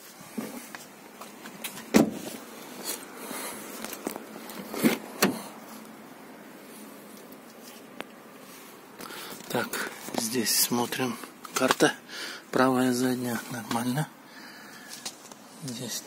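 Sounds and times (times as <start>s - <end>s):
car door thudding shut: 1.9s - 2.3s.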